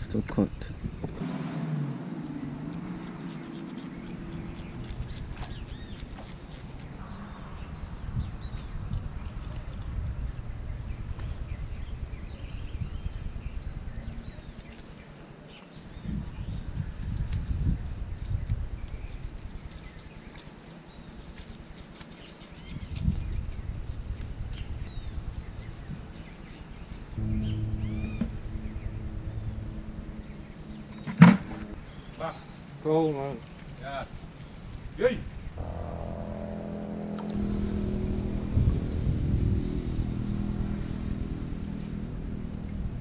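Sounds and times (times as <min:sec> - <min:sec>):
motor engine humming: 0:00.8 - 0:07.5, 0:27.1 - 0:32.2, 0:35.6 - 0:43.0.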